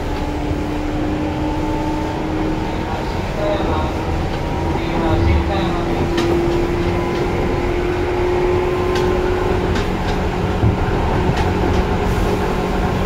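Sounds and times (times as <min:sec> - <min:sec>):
train motor hum: 0:00.0 - 0:13.0
train wheels rumbling on rails: 0:00.0 - 0:13.0
rail joint clicks: 0:03.4 - 0:13.0.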